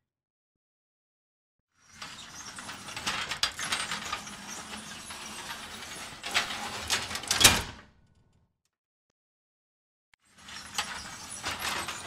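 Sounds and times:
metal gate rolling along track: 2.0s - 7.6s, 10.4s - 12.0s.

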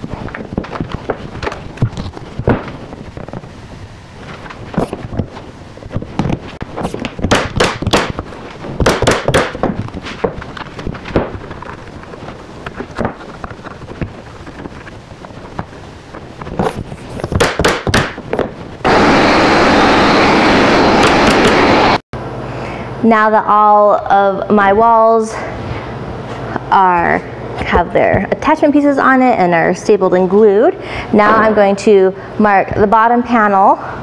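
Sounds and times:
pneumatic nail gun firing: 8.8s - 9.6s, 17.4s - 18.2s
loud steady rushing noise: 17.4s - 23.1s.

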